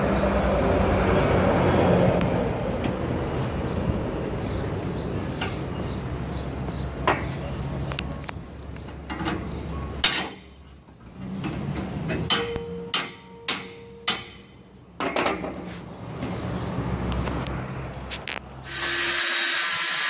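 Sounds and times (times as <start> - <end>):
metal tool hitting steel grate: 12.3 - 15.5.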